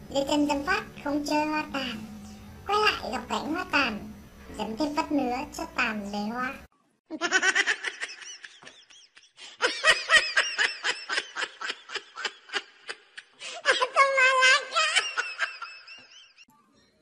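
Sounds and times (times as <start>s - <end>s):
high-pitched laughter: 7.1s - 16.4s.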